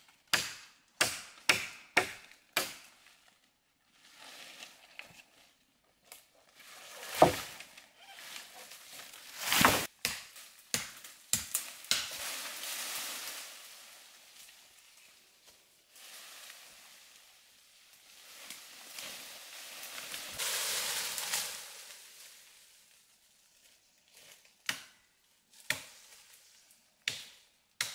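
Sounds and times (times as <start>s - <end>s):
machete chopping brush: 0.3s - 2.9s, 6.9s - 7.6s, 9.3s - 12.3s
leaves and twigs rustling: 2.2s - 26.9s
branches snapping: 6.8s - 12.3s.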